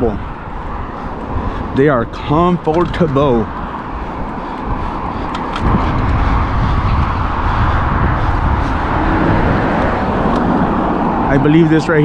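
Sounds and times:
heavy low rumble: 0.0 - 12.0
road noise: 0.0 - 12.0
wind on microphone: 0.0 - 12.0.

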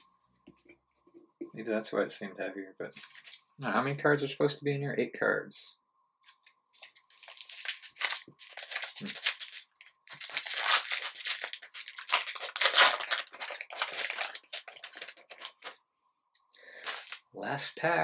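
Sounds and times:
foil wrapper crinkling and tearing: 6.8 - 15.8, 16.8 - 17.2.

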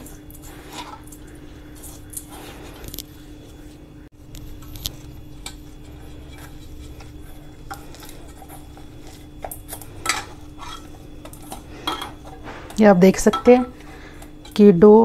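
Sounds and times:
dough rubbed against metal bowl: 0.0 - 13.8.

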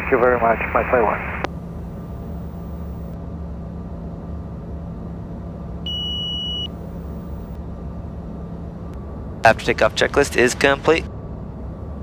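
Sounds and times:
jet cockpit engine drone: 0.0 - 12.0
high electronic beep: 5.9 - 6.7.

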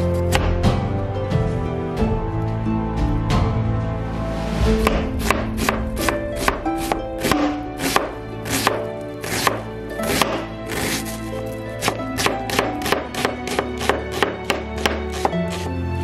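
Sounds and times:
background music: 0.0 - 16.0
knife chopping on cutting board: 0.3 - 0.7, 4.8 - 11.2, 11.8 - 15.7.

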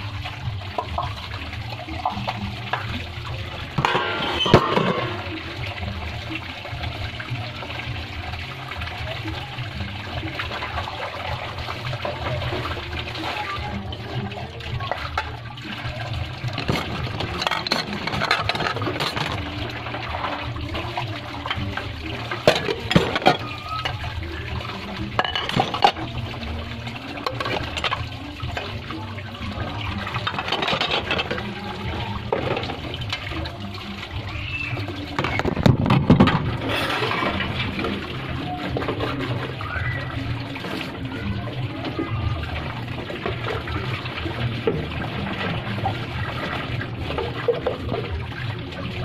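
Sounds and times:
water running and splashing: 0.0 - 49.0
clinks and knocks: 16.6 - 19.5, 25.2 - 26.0, 30.2 - 31.5.

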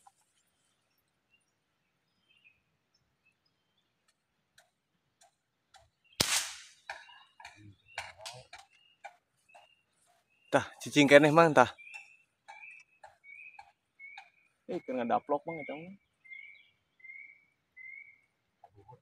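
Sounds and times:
faint bird chirps: 0.0 - 19.0
air rifle crack: 6.2 - 7.0.

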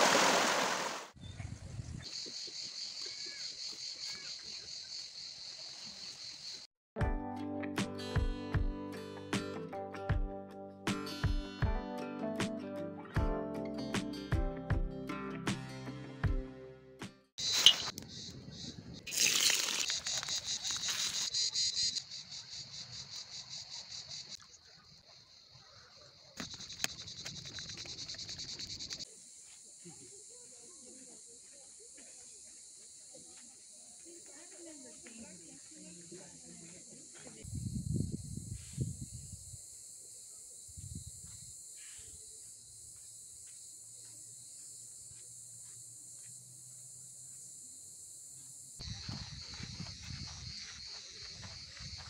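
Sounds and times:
cicadas singing: 2.0 - 6.7, 17.4 - 52.0
insects chirping: 2.0 - 6.7, 17.4 - 52.0.

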